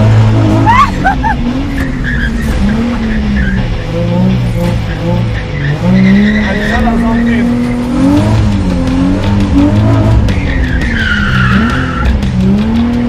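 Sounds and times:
car engine revving: 0.0s - 13.0s
tire squeal: 0.4s - 7.6s, 9.6s - 12.6s.

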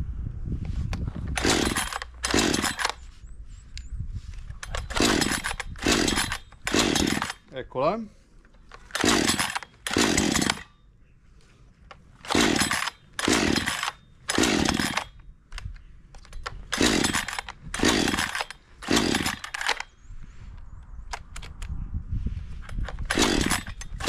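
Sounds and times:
chainsaw recoil starter pulls: 1.0s - 3.0s, 4.6s - 7.6s, 8.6s - 10.7s, 12.2s - 19.9s, 22.6s - 24.0s.

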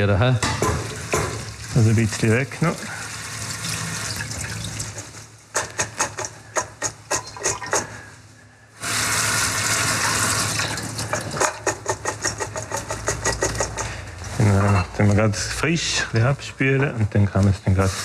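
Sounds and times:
water running into metal bowl: 0.6s - 5.3s, 8.9s - 14.0s.

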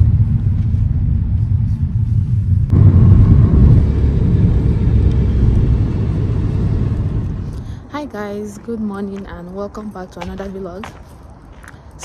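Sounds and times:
car rumble: 0.0s - 8.8s.

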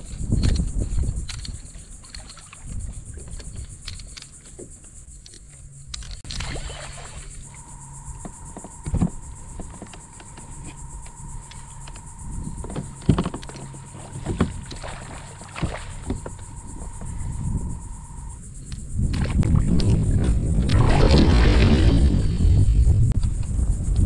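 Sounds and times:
high insect buzz: 0.0s - 24.0s
steady single tone: 6.6s - 18.4s
low rumble: 7.3s - 24.0s
hollow knocks on kayak hull: 12.6s - 17.3s.

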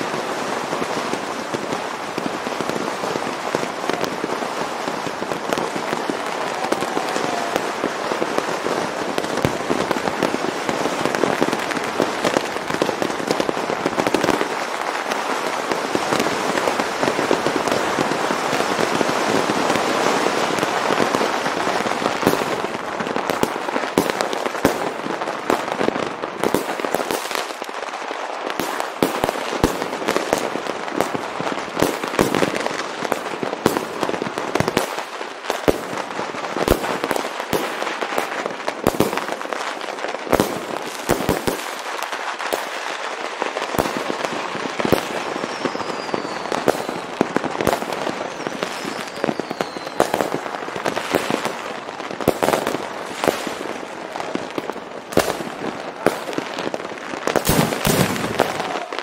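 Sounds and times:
fireworks crackling: 0.0s - 59.0s
falling firework whistles: 44.8s - 50.4s, 57.3s - 59.0s
firecracker bangs: 57.3s - 59.0s.

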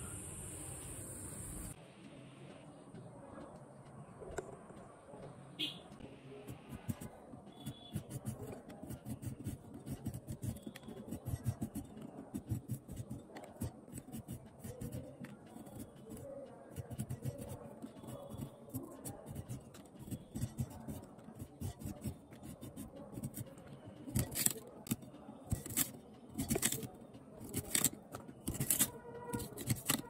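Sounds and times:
blade scraping fruit skin: 24.1s - 30.0s.

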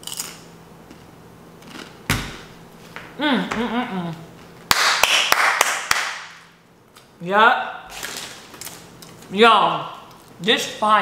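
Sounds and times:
woman humming appreciatively: 3.2s - 4.3s.

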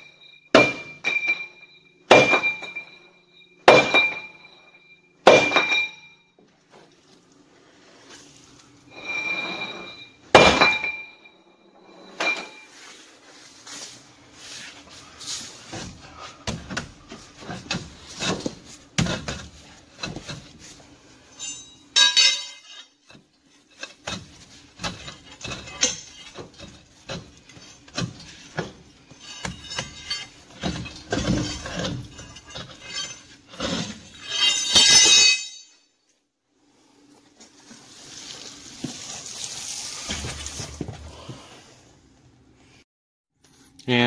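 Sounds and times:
metallic clanks and knocks of wheel rim: 15.7s - 20.7s, 21.4s - 35.7s.

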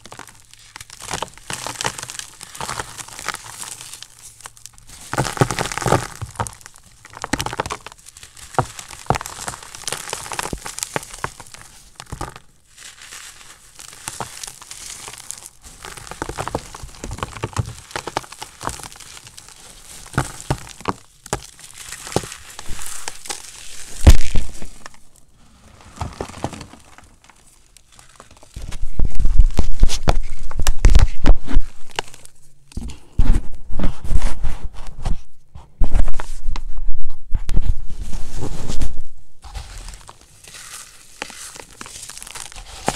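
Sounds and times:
chalk crunching in hands: 0.0s - 25.1s, 39.4s - 42.9s.

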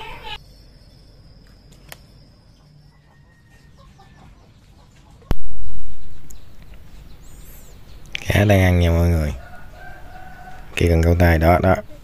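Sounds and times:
chickens clucking: 3.0s - 5.4s
loud low rumble: 5.3s - 6.7s
sharp click: 5.3s - 6.8s.

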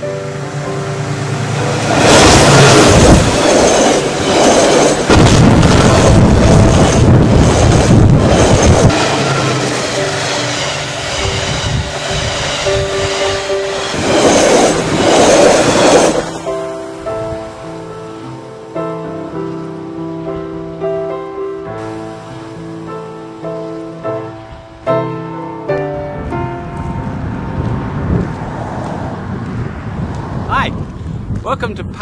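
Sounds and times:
train rushing past: 0.0s - 31.9s
wheels clacking over rail joints: 1.7s - 16.6s.

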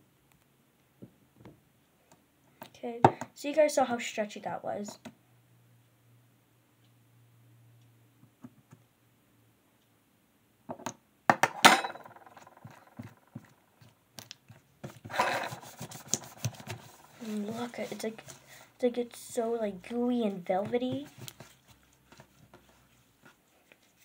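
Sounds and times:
slime tapping and rubbing: 12.1s - 24.0s.

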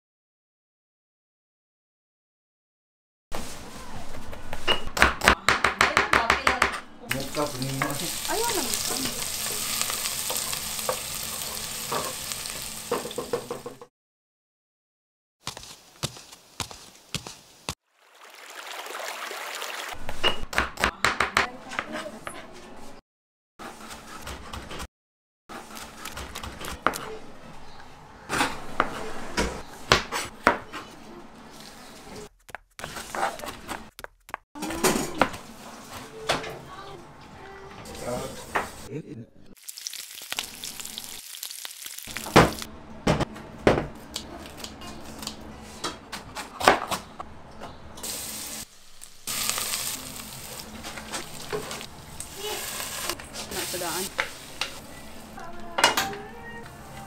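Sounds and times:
food sizzling in a hot pan: 7.1s - 13.6s, 39.6s - 42.7s, 48.0s - 55.2s.

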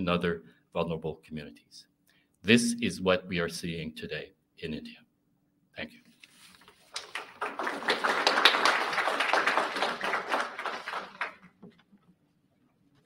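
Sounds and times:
audience applauding: 6.9s - 11.7s.

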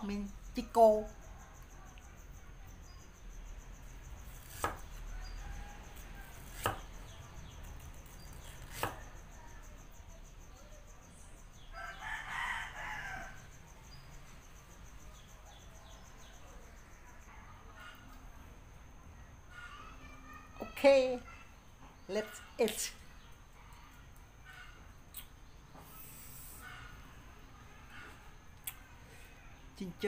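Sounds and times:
cleaver chopping on wooden block: 4.5s - 4.8s, 6.4s - 6.9s, 8.6s - 9.1s
rooster crowing: 5.0s - 6.6s, 11.6s - 13.6s.

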